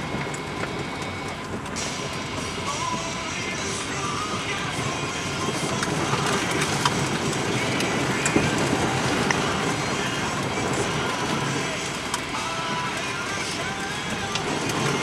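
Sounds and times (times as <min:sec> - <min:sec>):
sharp clicks of hail: 0:00.0 - 0:15.0
tyre and road noise: 0:00.0 - 0:15.0.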